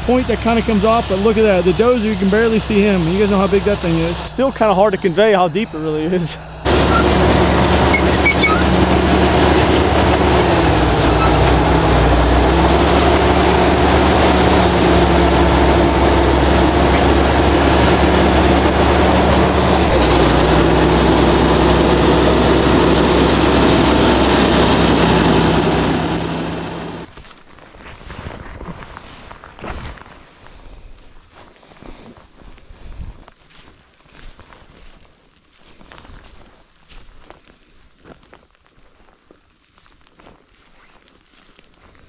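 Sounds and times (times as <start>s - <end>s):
bulldozer diesel engine droning: 0.0s - 27.1s.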